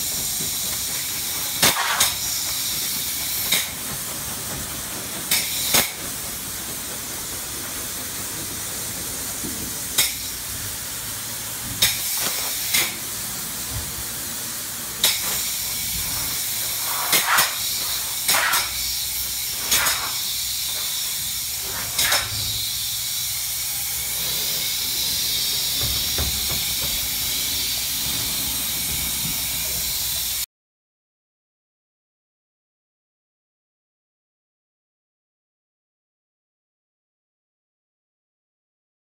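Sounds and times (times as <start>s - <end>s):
spray foam gun hissing: 0.0s - 30.4s.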